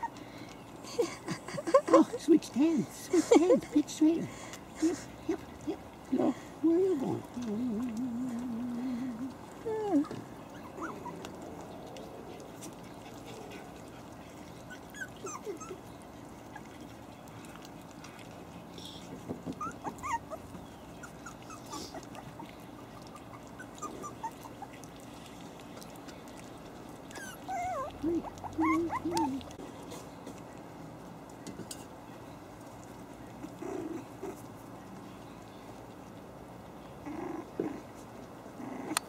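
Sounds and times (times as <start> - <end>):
puppies whining: 0.0 - 2.0, 4.7 - 30.1, 33.2 - 35.8, 36.9 - 38.0, 38.6 - 39.0
puppies whimpering and yipping: 0.0 - 2.2, 4.3 - 18.4, 19.5 - 29.9.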